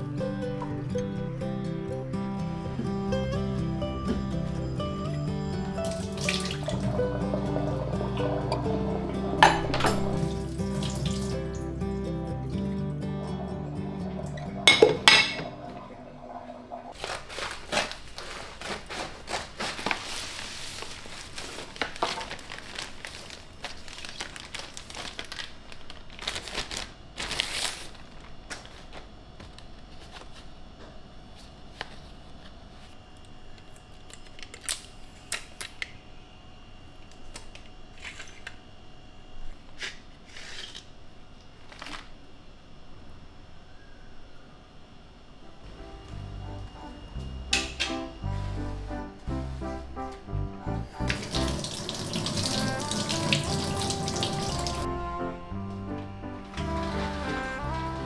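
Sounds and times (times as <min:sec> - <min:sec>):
ceramic dishes clattering: 0:09.4 - 0:10.2, 0:14.7 - 0:15.6
plastic bag crinkling: 0:16.9 - 0:29.0.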